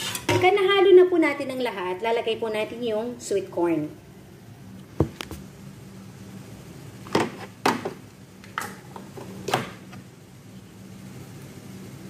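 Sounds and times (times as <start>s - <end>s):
knocks and clunks on kitchen counter: 5.0s - 5.2s, 7.1s - 8.0s.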